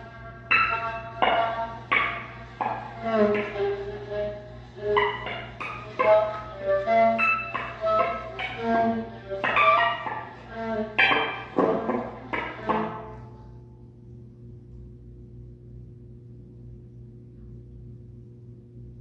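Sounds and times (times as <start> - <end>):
bowed viola notes: 0.0 - 13.6
steady low hum: 0.0 - 19.0.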